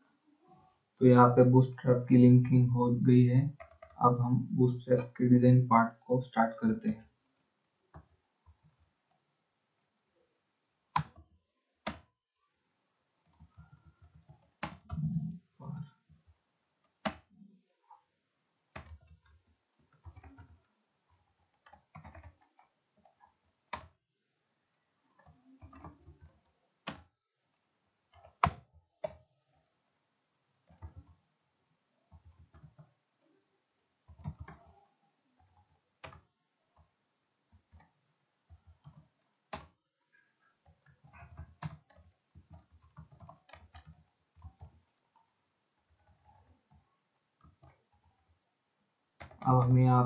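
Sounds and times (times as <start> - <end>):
computer keyboard typing: 3.5 - 7.2, 7.9 - 9.2, 10.9 - 12.1, 13.2 - 17.5, 18.7 - 24.0, 25.1 - 29.8, 30.6 - 31.4, 32.1 - 33.4, 34.0 - 48.4, 49.2 - 50.0.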